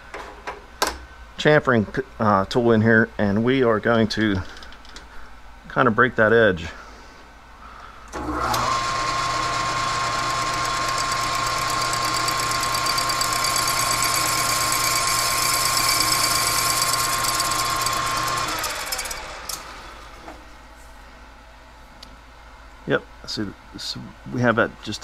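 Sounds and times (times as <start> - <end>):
metal lathe whining and humming: 8.2 - 19.8.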